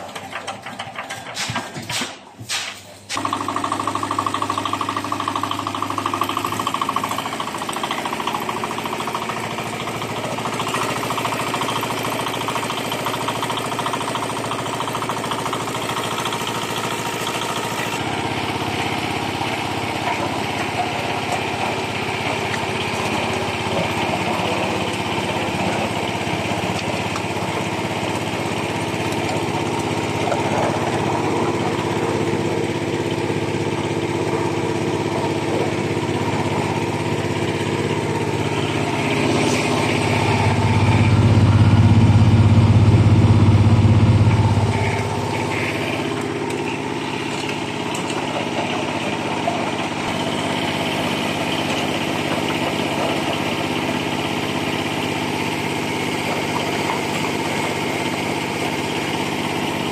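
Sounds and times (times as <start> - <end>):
diesel engine running: 3.1 - 59.9
louder low hum: 38.4 - 46.3.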